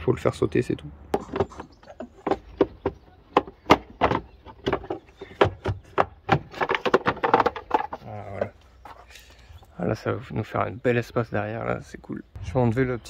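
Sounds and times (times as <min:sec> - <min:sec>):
plastic housing knocking and clicking: 0:01.2 - 0:08.5.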